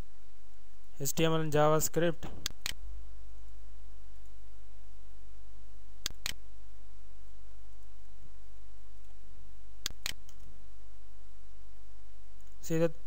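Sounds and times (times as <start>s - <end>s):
steady low hum: 0.0s - 13.0s
computer mouse clicks: 2.4s - 2.8s, 6.0s - 6.4s, 9.8s - 10.5s.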